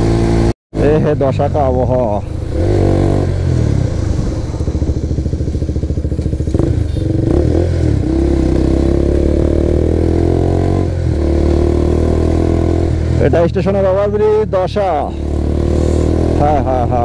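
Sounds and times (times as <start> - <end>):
motorcycle engine running: 0.0 - 17.0.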